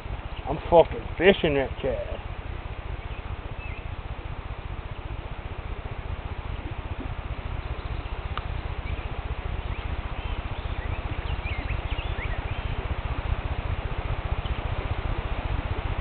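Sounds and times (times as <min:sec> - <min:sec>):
wind buffeting microphone: 0:00.0 - 0:16.0
high bird chirps: 0:03.0 - 0:03.9, 0:07.6 - 0:12.8.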